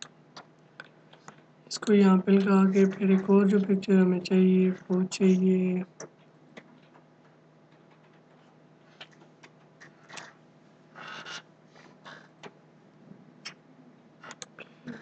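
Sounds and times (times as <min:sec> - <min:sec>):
computer mouse clicks: 0:14.2 - 0:14.5.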